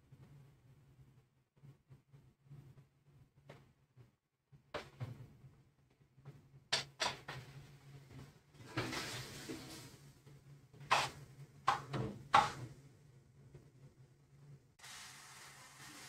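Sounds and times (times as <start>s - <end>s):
knocks and clicks of kitchenware: 6.7s - 7.4s, 10.9s - 12.6s.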